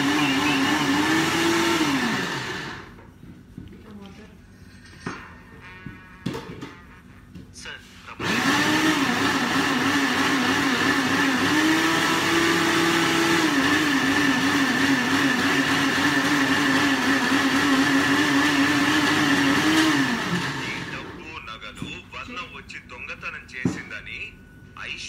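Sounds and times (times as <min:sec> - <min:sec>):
electric blender running: 0:00.0 - 0:03.0, 0:08.2 - 0:21.4.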